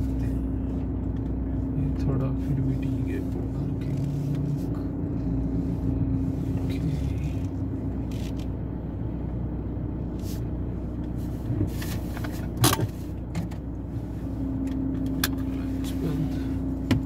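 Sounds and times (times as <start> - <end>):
car engine drone: 0.0 - 17.0.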